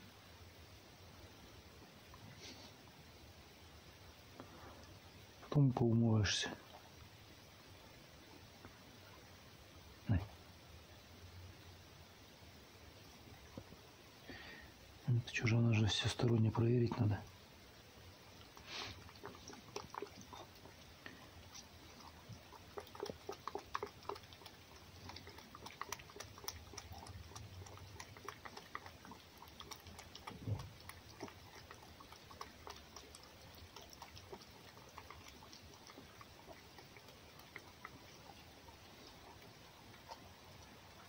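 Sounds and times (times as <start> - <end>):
animal wet smacking and licking: 15.3 - 17.4, 18.1 - 41.0.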